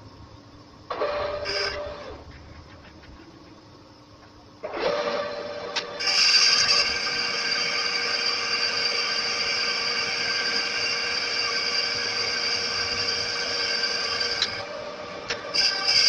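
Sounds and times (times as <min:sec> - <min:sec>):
lathe cutting whine: 0:00.9 - 0:02.2, 0:04.6 - 0:16.0
lathe running: 0:04.6 - 0:16.0.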